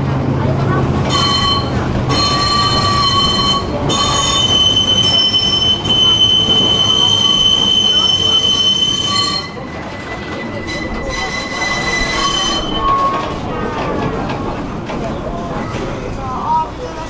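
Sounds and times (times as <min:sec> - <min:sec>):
low rumble of tram car: 0:00.0 - 0:17.0
tram wheels squealing on rails: 0:01.0 - 0:17.0.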